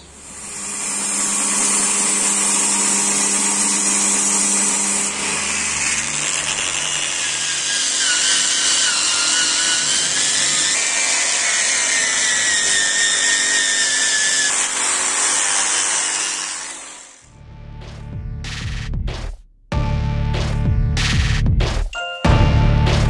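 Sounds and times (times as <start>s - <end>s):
angle grinder grinding steel: 0.0s - 17.3s.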